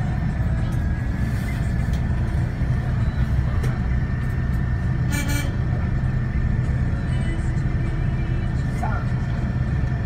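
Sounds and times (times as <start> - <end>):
bus engine rumbling: 0.0 - 10.0
vehicle horn toot: 5.0 - 5.7.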